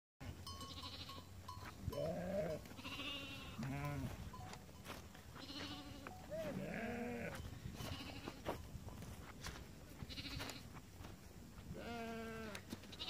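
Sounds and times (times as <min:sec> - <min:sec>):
sheep and goats bleating: 0:00.4 - 0:08.6, 0:10.0 - 0:10.8, 0:11.7 - 0:13.0.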